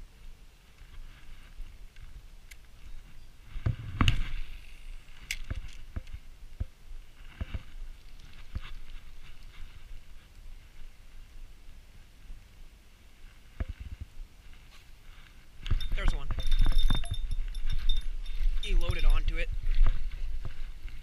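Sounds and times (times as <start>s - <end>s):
rustling: 6.9s - 11.5s.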